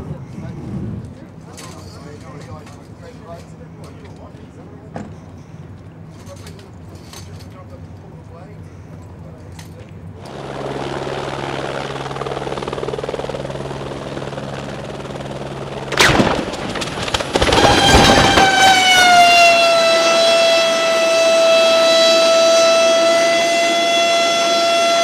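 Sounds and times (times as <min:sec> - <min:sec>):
helicopter rotor and engine drone: 0:01.2 - 0:25.0
loud continuous whine: 0:01.4 - 0:25.0
helicopter crash smash: 0:15.8 - 0:19.6
crunching and thrashing: 0:15.9 - 0:18.8.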